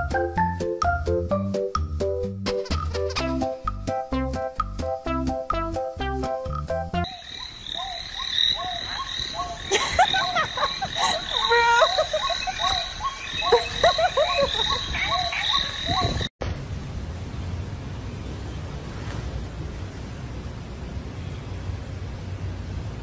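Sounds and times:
high insect drone: 7.0s - 16.0s
frogs chirping: 7.0s - 16.3s.

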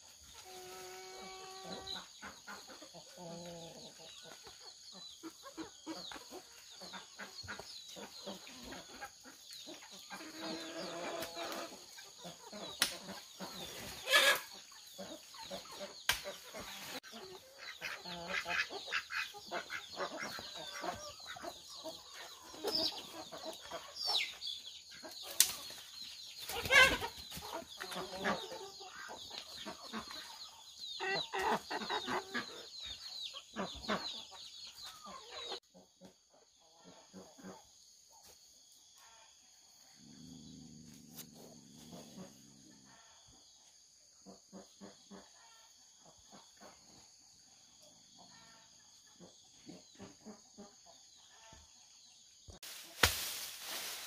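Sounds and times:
chickens clucking: 0.0s - 53.8s.

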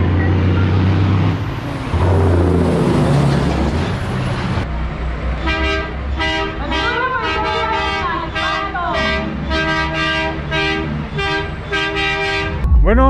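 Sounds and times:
heavy diesel truck engines: 0.0s - 12.6s
truck air horn blasts: 5.4s - 12.7s.

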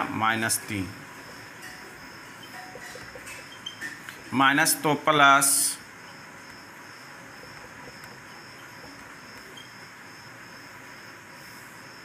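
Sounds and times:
insect chirring: 0.3s - 12.0s
faint hiss: 9.1s - 12.0s.

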